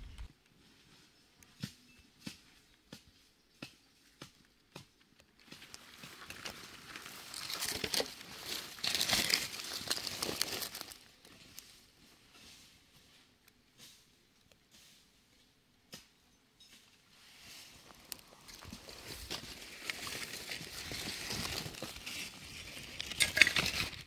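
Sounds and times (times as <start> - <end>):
glove rustling against microphone: 17.5 - 23.2.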